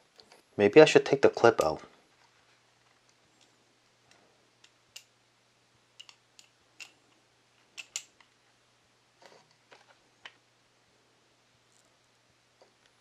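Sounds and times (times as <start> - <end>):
metal pencil clicking and tapping: 6.0 - 7.0, 7.8 - 8.1.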